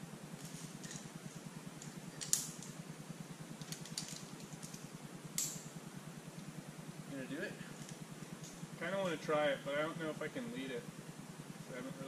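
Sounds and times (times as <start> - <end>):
steady low hum: 0.0 - 12.0
climbing gear clinking: 3.6 - 5.7.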